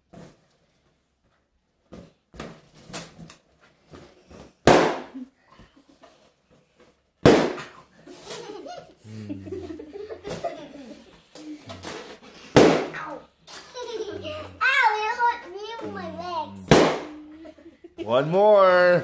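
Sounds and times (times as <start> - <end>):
balloons popping: 4.6 - 5.3, 7.2 - 8.4, 11.2 - 14.6, 15.8 - 17.3.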